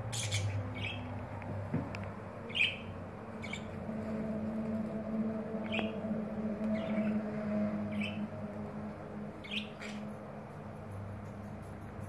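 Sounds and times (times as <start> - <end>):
budgerigars chirping: 0.1 - 1.1, 2.5 - 3.8, 5.7 - 6.0, 6.7 - 7.2, 7.9 - 8.2, 9.4 - 10.1.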